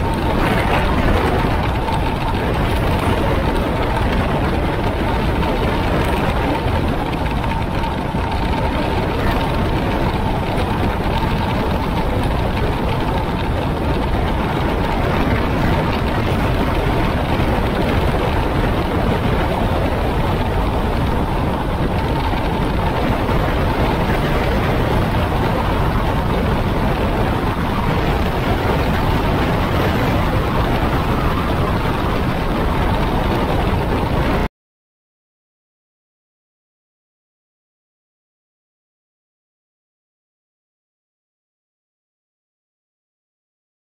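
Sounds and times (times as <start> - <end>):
wind and road noise: 0.0 - 34.5.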